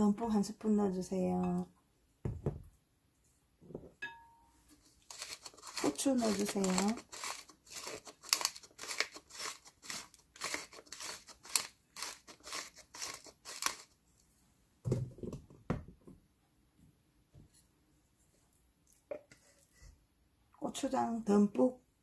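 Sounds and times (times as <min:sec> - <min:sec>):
pepper mill grinding: 0:05.0 - 0:14.0.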